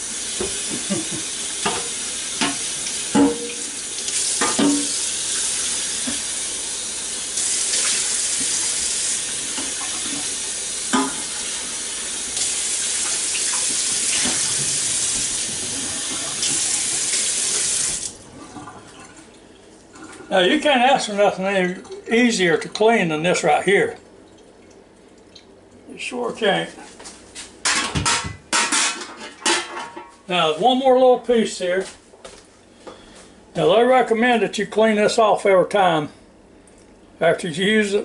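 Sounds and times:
faucet running water: 0:00.0 - 0:25.6
pot knocking in sink: 0:00.4 - 0:03.7, 0:04.4 - 0:05.0.

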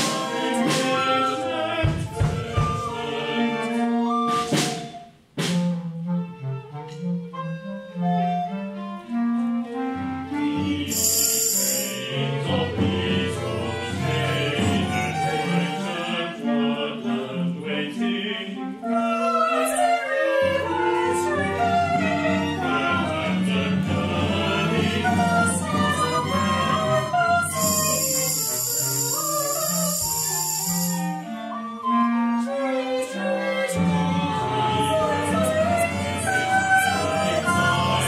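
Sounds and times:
voices singing: 0:00.0 - 0:04.6, 0:10.3 - 0:31.7, 0:32.4 - 0:38.0
violins and viola: 0:00.0 - 0:05.0, 0:05.6 - 0:11.2, 0:12.0 - 0:38.0
bass clarinet: 0:00.2 - 0:10.9, 0:12.5 - 0:38.0
bright high ringing: 0:10.9 - 0:12.1, 0:27.6 - 0:31.2
recorders: 0:27.6 - 0:31.2.

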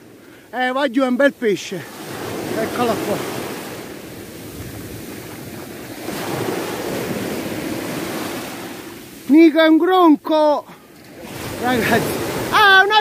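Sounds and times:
sea surf breaking on beach: 0:00.0 - 0:13.0
wind buffeting microphone: 0:02.0 - 0:09.2, 0:10.9 - 0:13.0.

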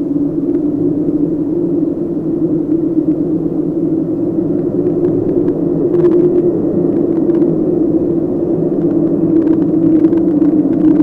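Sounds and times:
dark ambient drone: 0:00.0 - 0:11.0
faint clicks and crackles: 0:00.3 - 0:01.0, 0:04.0 - 0:11.0.

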